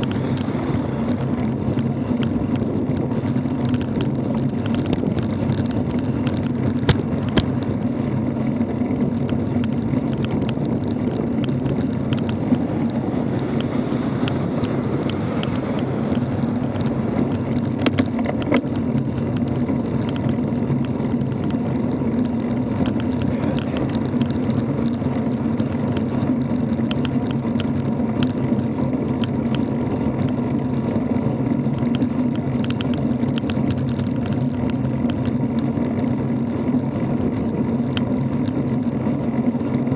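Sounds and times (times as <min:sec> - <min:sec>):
bike rolling on asphalt: 0:00.0 - 0:39.9
wind buffeting microphone: 0:00.0 - 0:39.9
camera mount clicks and rattles: 0:13.6 - 0:18.7.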